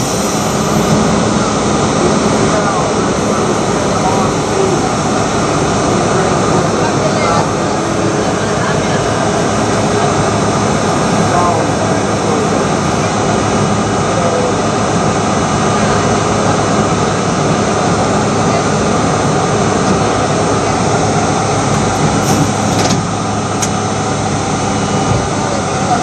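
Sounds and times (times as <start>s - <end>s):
subway car mechanical drone: 0.0s - 26.0s.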